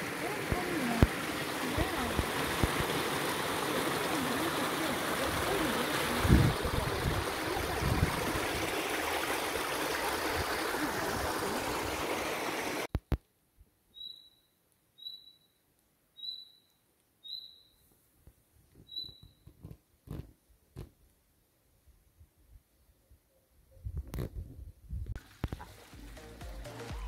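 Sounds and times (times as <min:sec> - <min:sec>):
stream running over rocks: 0:00.0 - 0:12.9
short high bird chirp: 0:13.9 - 0:15.6, 0:16.2 - 0:17.8, 0:18.8 - 0:19.4.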